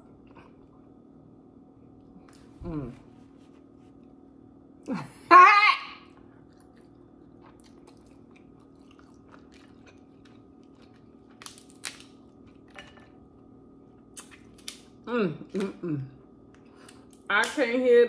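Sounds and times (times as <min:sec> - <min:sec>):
soft chewing clicks: 0:06.2 - 0:12.8
crab shell cracking: 0:11.3 - 0:12.2, 0:14.2 - 0:15.0.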